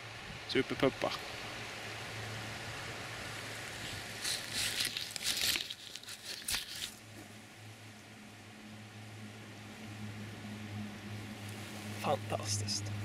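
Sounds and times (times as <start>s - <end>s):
steady stream hiss: 0.0s - 13.0s
rustling crinkling handling noise: 3.5s - 7.2s.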